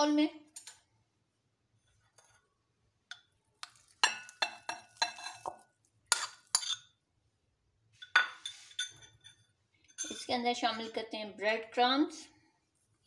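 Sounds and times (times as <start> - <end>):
metal spoon clinking on glass: 4.0 - 6.9, 8.0 - 10.3.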